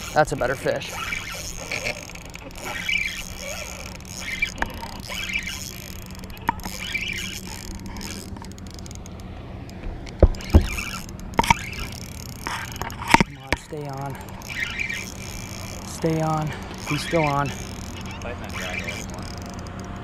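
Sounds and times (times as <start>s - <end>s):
fishing reel handling noise: 0.0s - 20.0s
sharp knocks: 9.8s - 11.8s.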